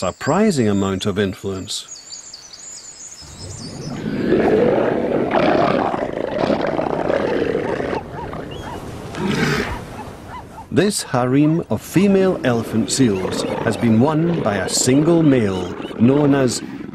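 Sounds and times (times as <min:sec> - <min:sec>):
elephant seal calling: 0:03.3 - 0:10.8, 0:12.3 - 0:16.9.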